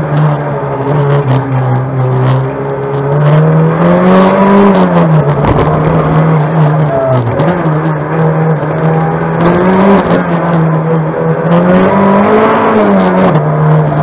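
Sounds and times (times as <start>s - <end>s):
car engine revving: 0.0s - 14.0s.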